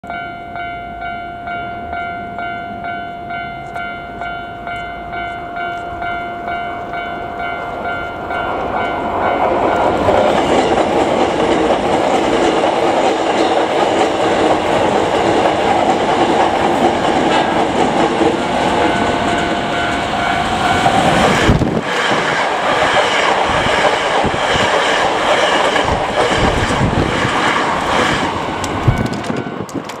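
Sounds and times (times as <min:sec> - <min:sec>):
crossing warning bell dinging: 0:00.0 - 0:30.0
train wheels clattering over rail joints: 0:08.5 - 0:30.0.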